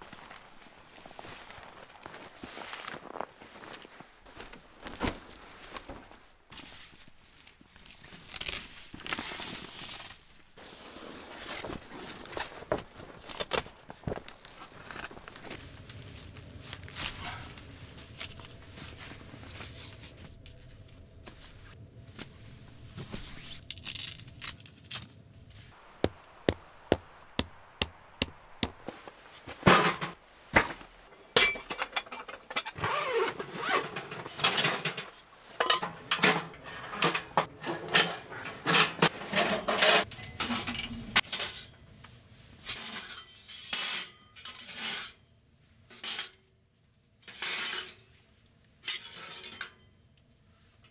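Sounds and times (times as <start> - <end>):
metal stovepipes clattering: 29.6 - 30.2, 31.1 - 32.8, 33.4 - 41.8.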